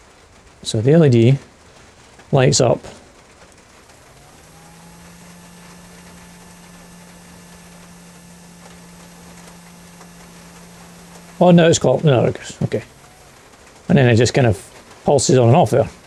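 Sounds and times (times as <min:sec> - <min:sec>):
induction heater humming: 0:01.8 - 0:16.0
high whine: 0:03.8 - 0:15.8.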